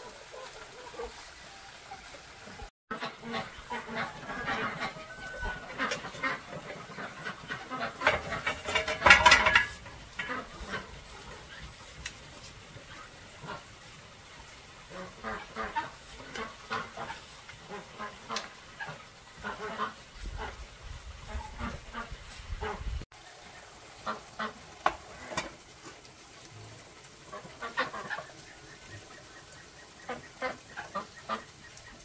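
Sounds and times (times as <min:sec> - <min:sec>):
waterfowl calling: 0:00.0 - 0:09.6, 0:21.2 - 0:25.6, 0:27.2 - 0:32.0.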